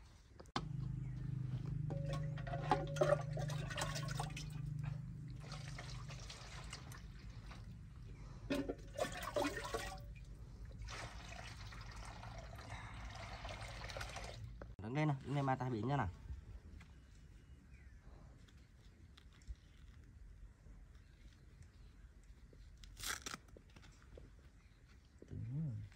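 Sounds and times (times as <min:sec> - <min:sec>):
low steady hum: 0:00.4 - 0:17.7
water pouring into metal basin: 0:01.9 - 0:07.8, 0:08.4 - 0:14.5.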